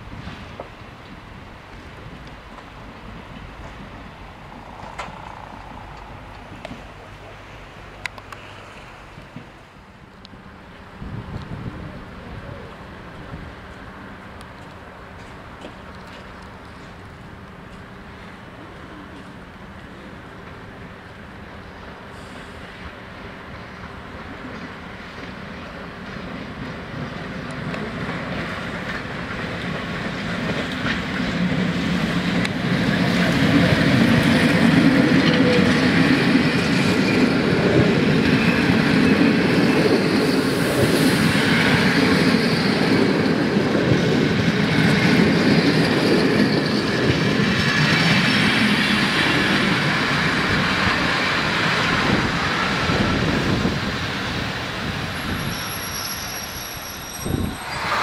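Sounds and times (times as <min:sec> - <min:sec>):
high squeals from running gear: 0:55.1 - 0:58.0.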